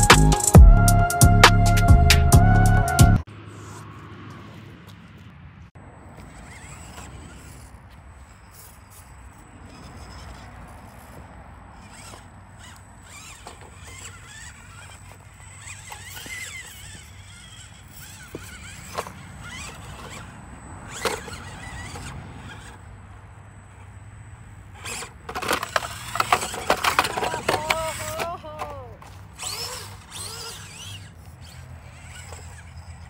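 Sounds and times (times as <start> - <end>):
rc truck motor whining: 0.0 - 33.0
truck knocking against stones: 24.8 - 32.6.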